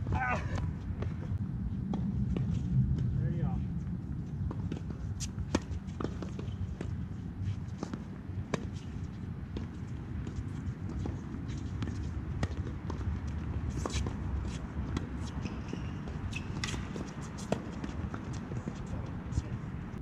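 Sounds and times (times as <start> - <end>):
low rumble: 0.0 - 5.2
racket hitting tennis ball: 13.7 - 18.4.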